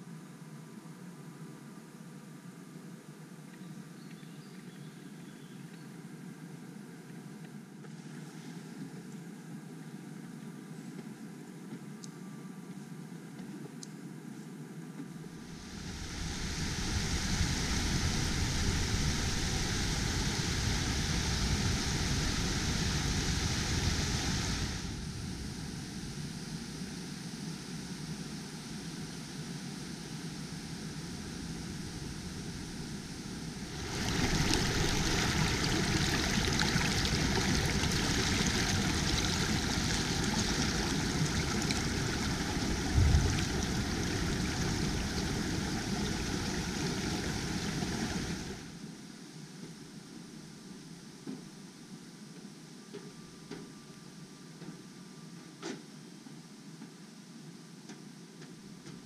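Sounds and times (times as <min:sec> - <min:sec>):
stream rushing over stones: 0:15.4 - 0:25.0, 0:32.8 - 0:48.7.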